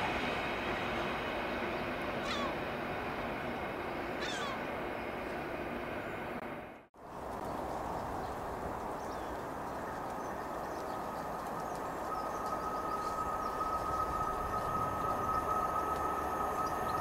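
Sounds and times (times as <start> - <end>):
diesel locomotive approaching: 0.0 - 17.0
steady whine: 10.1 - 17.0.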